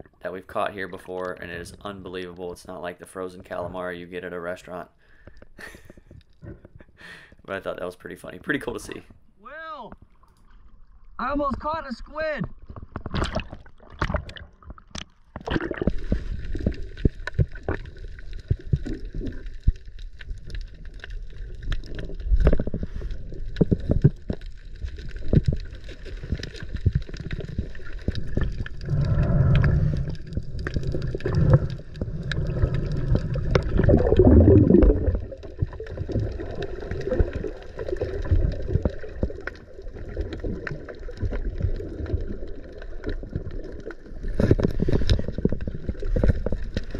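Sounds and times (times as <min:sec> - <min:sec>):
underwater knocks and clicks: 0:12.4 - 0:46.9
underwater gurgling and bubbling: 0:12.6 - 0:46.9.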